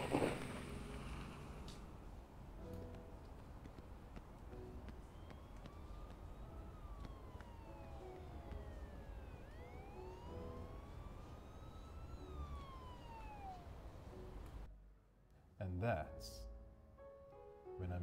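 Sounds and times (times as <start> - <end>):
emergency siren wailing: 2.6 - 14.7.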